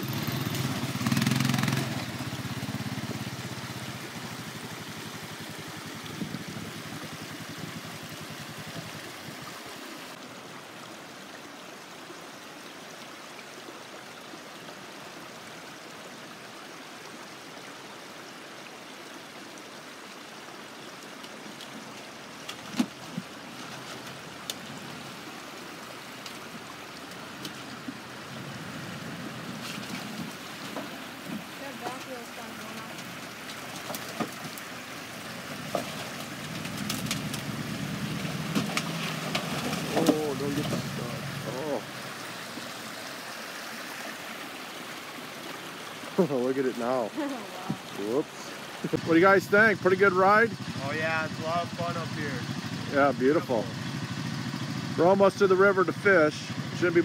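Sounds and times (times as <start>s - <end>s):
atv engine running: 0.0s - 9.4s, 22.6s - 42.6s, 48.9s - 57.0s
water trickling: 0.0s - 57.0s.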